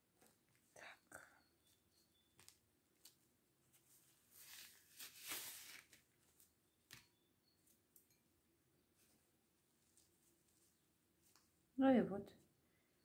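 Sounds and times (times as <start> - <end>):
fingers rustling in powder: 1.6 - 6.0.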